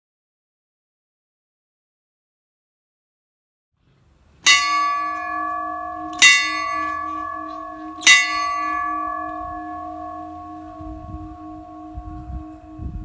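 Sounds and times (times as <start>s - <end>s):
small bell ringing: 4.5s - 13.0s.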